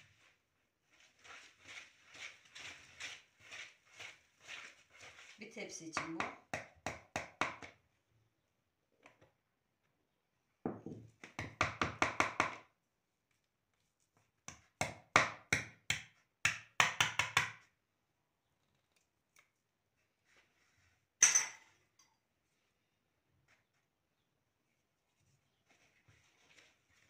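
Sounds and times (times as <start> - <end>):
whisk knocking plastic bowl: 1.3 - 7.8.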